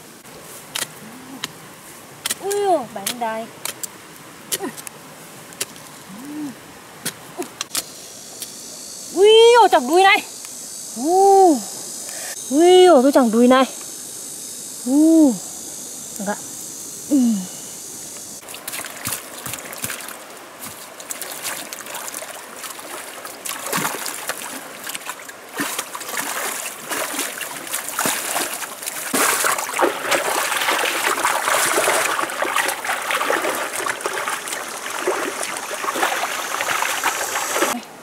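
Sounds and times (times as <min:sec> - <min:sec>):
hands splashing in muddy water: 0:18.4 - 0:37.8.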